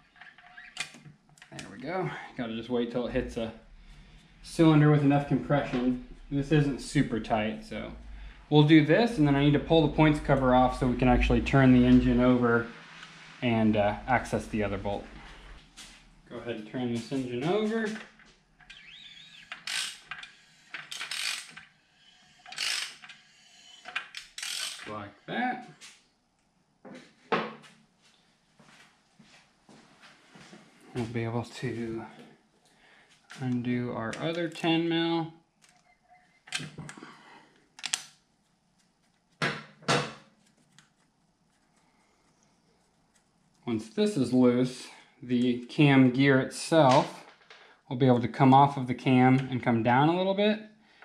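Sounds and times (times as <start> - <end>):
socket ratchet clicking: 19.5 - 21.6, 22.5 - 23.2, 24.0 - 24.9.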